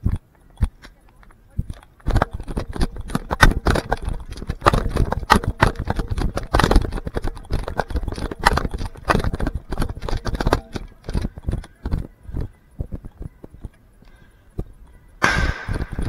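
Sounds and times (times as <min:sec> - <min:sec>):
camera jolting: 0:02.0 - 0:12.0.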